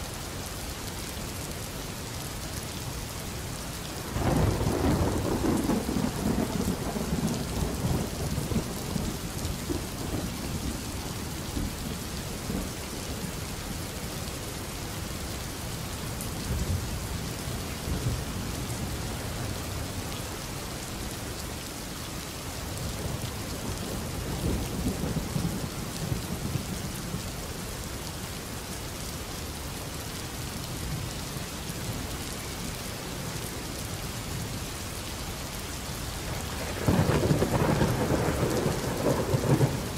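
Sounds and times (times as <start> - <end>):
steady rain: 0.0 - 39.9
low rolling thunder: 4.0 - 12.8, 23.0 - 27.2, 36.3 - 39.9.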